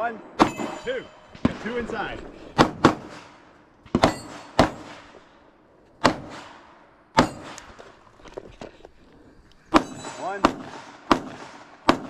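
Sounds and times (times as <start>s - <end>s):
pistol shots: 2.6s - 5.4s, 6.0s - 7.8s, 9.7s - 12.0s.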